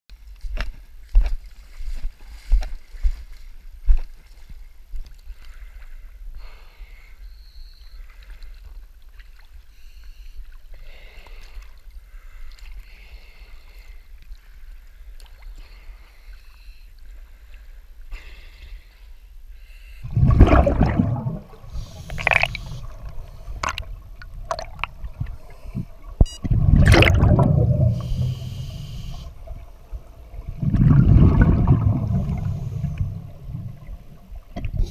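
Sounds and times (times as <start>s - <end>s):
underwater regulator exhaust bubbles: 20.0s - 34.9s.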